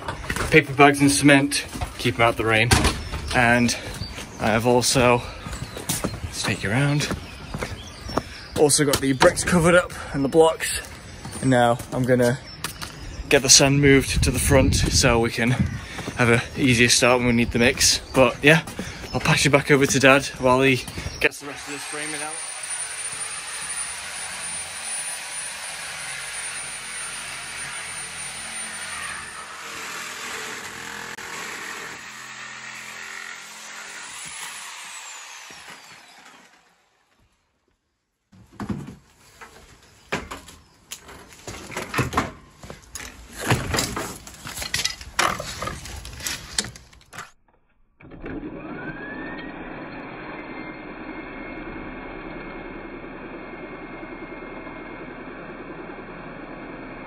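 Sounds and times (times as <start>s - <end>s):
angle grinder cutting plastic: 20.0s - 37.4s, 48.1s - 54.4s.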